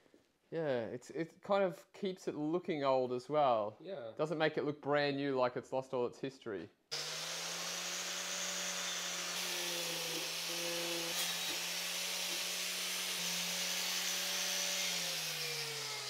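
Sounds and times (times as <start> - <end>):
angle grinder wire brush scrubbing: 7.4 - 16.0.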